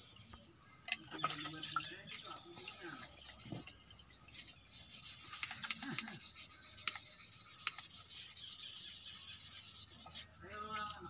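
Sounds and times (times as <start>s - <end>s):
sandpaper rubbing on metal: 0.0s - 0.5s, 2.2s - 10.4s.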